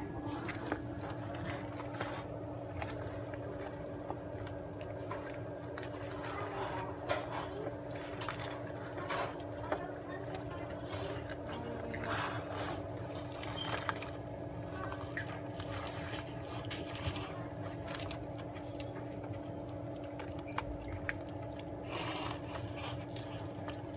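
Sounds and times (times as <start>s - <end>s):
steady low hum: 0.0s - 23.9s
tortoises chewing leaves: 0.0s - 23.9s.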